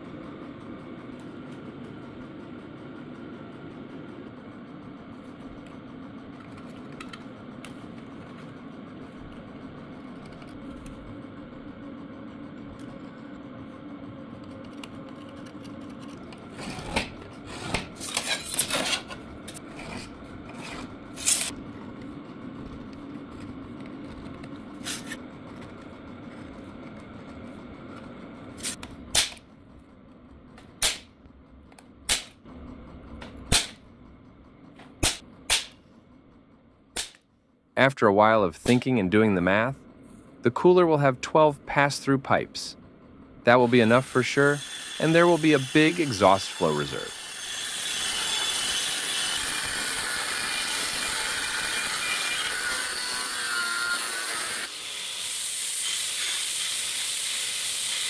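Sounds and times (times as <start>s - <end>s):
steady low hum: 0.0s - 47.2s
scriber scratching steel: 14.6s - 21.6s, 23.3s - 27.0s
center punch clicks: 37.0s - 37.2s.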